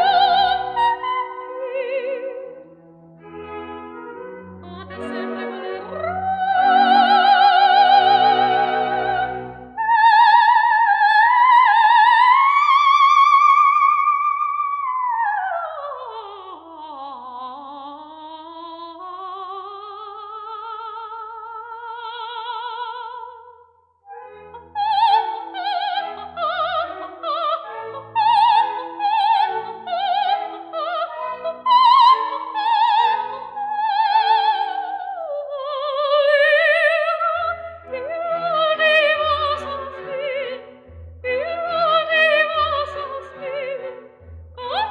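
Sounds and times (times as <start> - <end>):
musical accompaniment: 0.0 - 12.6, 35.9 - 44.9
operatic singing with vibrato: 0.0 - 23.4, 24.1 - 44.9.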